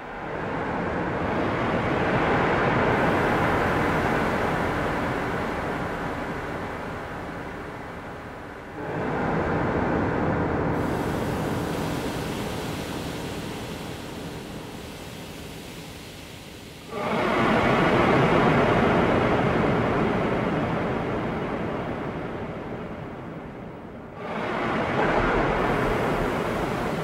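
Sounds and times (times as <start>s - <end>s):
dense rushing noise: 24.2s - 27.0s.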